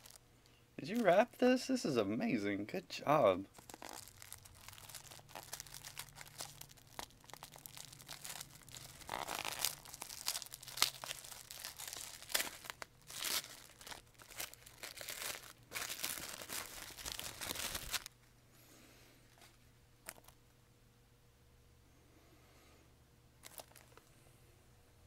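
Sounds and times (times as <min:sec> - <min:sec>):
gift wrapping crinkling and tearing: 0:00.0 - 0:00.2, 0:03.5 - 0:18.1, 0:23.4 - 0:24.0.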